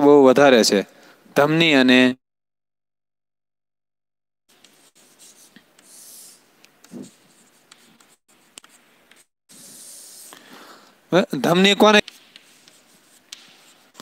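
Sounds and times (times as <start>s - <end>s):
chalk scratching on chalkboard: 4.5s - 10.5s, 11.8s - 14.0s.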